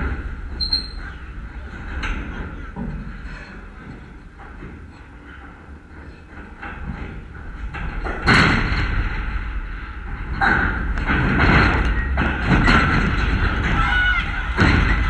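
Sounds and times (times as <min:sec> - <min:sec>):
crowd shouting: 0:13.7 - 0:15.0.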